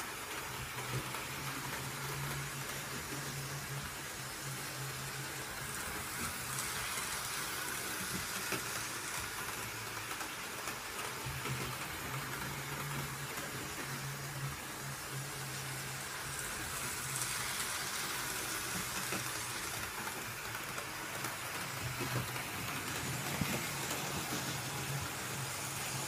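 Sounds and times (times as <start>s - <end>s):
model train motor hum: 0.0s - 26.0s
steady hiss: 0.0s - 26.0s.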